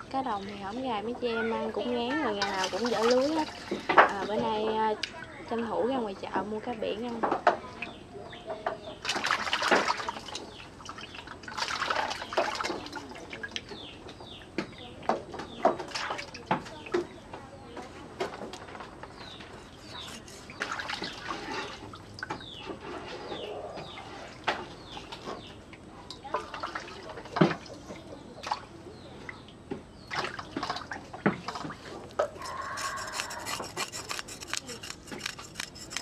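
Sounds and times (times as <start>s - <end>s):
water sloshing and dripping: 2.2s - 4.4s, 9.0s - 13.8s, 19.4s - 22.8s, 26.2s - 28.7s, 30.1s - 34.4s
knife scraping fish: 19.3s - 21.6s, 32.2s - 36.0s.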